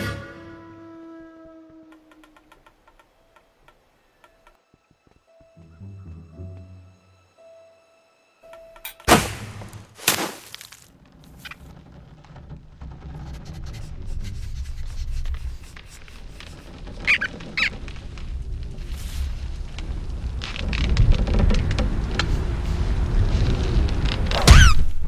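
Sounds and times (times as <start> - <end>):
cartoon sharp hits: 9.0 - 10.4
short squeaks: 11.1 - 18.1, 24.3 - 25.0.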